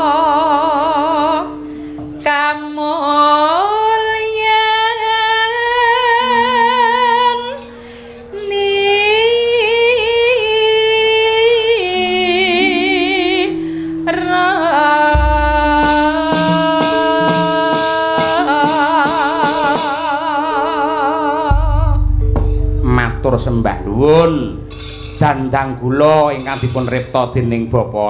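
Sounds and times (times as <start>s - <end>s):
steady instrument tones: 3.7s - 27.9s
woman singing solo: 8.4s - 22.1s
drum strokes: 15.2s - 20.2s, 21.5s - 27.3s.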